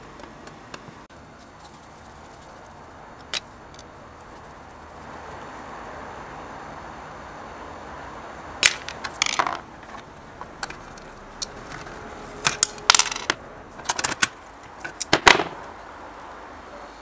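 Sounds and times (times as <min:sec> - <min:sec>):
metal parts clinking: 0:08.6 - 0:10.0, 0:12.4 - 0:15.6.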